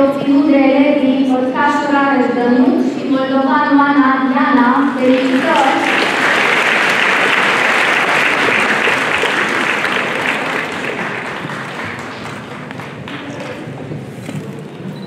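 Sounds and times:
crowd applauding: 4.9 - 14.0.

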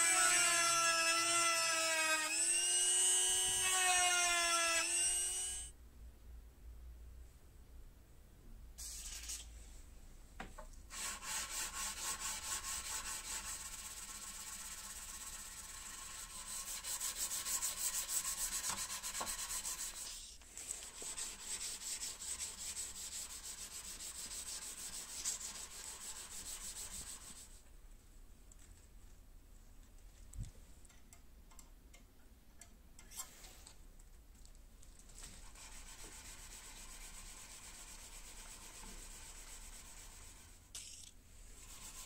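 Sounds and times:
sandpaper rubbing on knife blade: 10.9 - 20.4, 21.0 - 27.6, 41.6 - 42.0.

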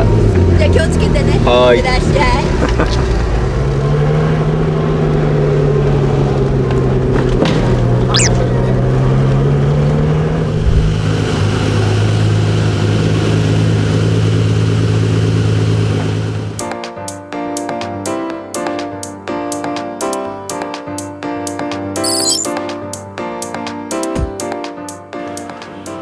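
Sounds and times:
brief high squeak: 8.1 - 8.4, 22.0 - 22.6.

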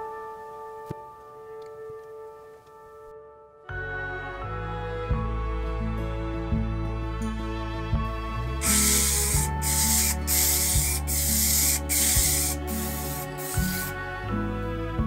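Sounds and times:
aerosol spray hissing: 8.6 - 14.0.

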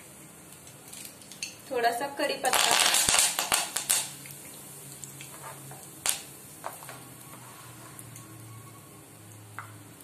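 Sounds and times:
seeds crackling in hot oil: 0.0 - 10.0.

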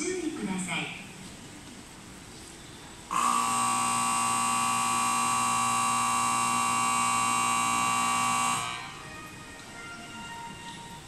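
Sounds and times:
electronic departure bell ringing: 3.1 - 9.0.

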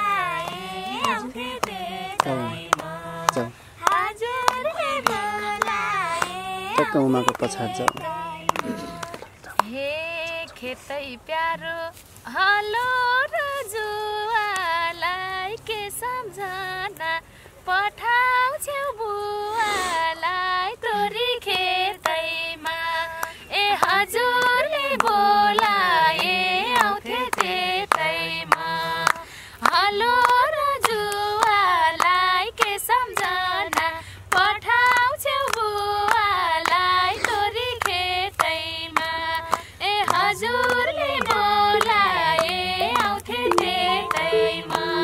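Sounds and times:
hand clapping: 0.0 - 9.8, 21.5 - 45.0
women singing folk song: 0.0 - 45.0.

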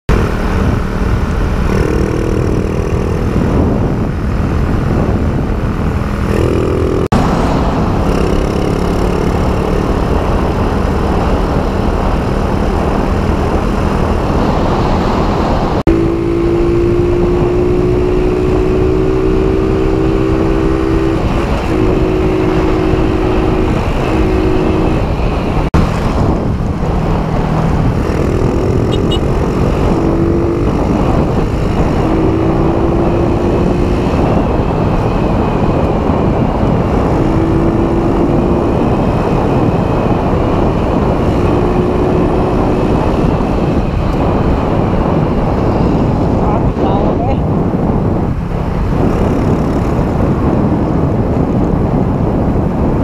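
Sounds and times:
motorcycle engine running: 0.1 - 14.6, 15.8 - 53.0
wind noise on microphone: 0.1 - 53.0.

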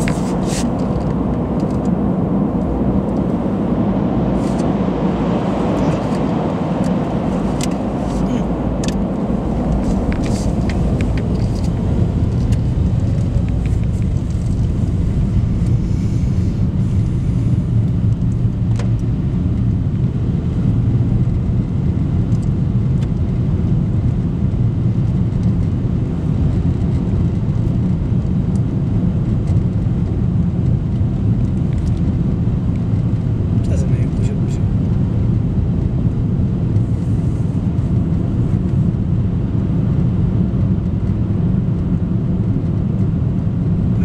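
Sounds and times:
car engine and tyres rumbling: 0.0 - 44.0.

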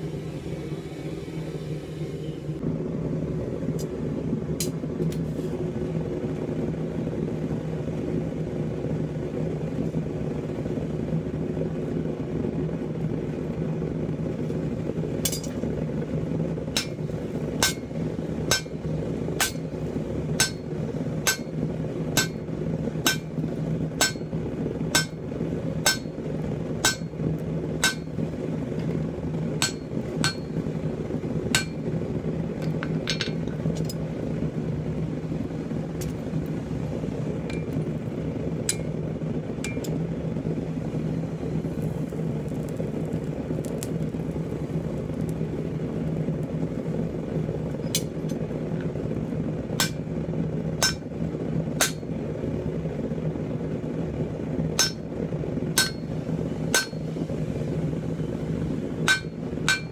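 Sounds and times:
steady low hum: 0.0 - 59.9
hammer striking metal on anvil: 16.7 - 17.0, 17.6 - 17.9, 18.5 - 18.8, 19.4 - 19.7, 20.4 - 21.6, 22.2 - 23.4, 24.0 - 24.3, 24.9 - 25.2, 25.8 - 26.1, 26.8 - 27.2, 27.8 - 28.2, 29.6 - 30.6, 31.5 - 31.8, 49.8 - 50.0, 50.8 - 51.1, 51.8 - 52.1, 54.8 - 55.1, 55.8 - 56.1, 56.7 - 57.1, 59.0 - 59.9.

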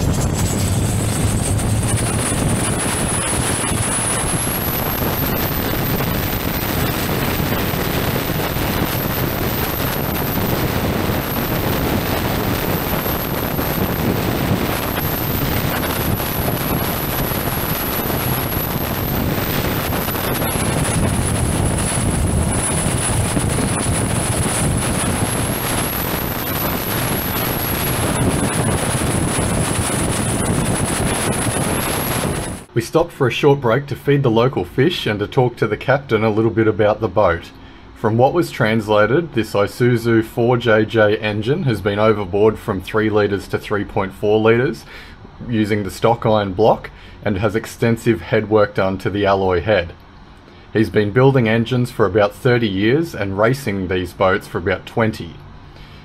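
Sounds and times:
diesel boat engine running hard: 0.0 - 32.7
thin high whine: 0.0 - 32.8
wind on microphone: 0.0 - 32.8.

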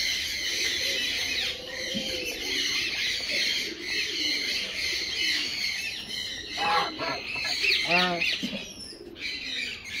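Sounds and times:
small birds chirping: 0.0 - 10.0
geese calling: 6.4 - 8.5
loud goose honk: 6.6 - 8.2.

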